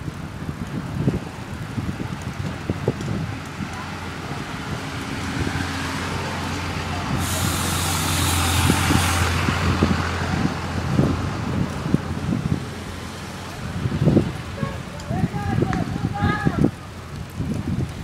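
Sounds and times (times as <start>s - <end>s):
truck engine running: 5.8s - 13.5s
air hissing: 7.1s - 9.4s.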